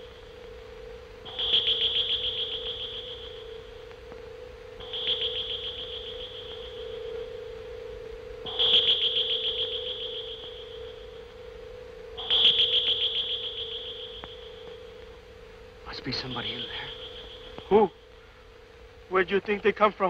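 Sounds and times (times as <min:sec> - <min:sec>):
steady low electronic hum: 0:00.0 - 0:20.0
high pulsing electronic tones: 0:15.9 - 0:18.0.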